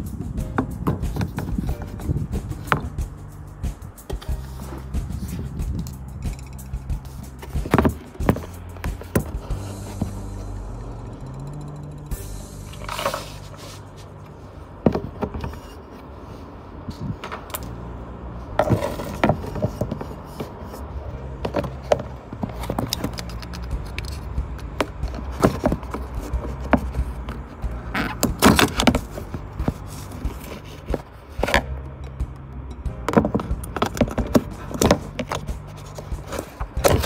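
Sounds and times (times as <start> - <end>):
background music with bass: 0.0 - 15.6, 17.5 - 37.0.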